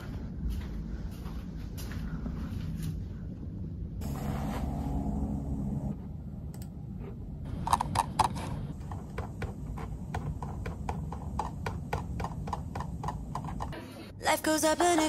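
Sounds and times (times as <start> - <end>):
low steady rumble: 0.0 - 13.8
laptop keyboard typing: 7.7 - 13.8.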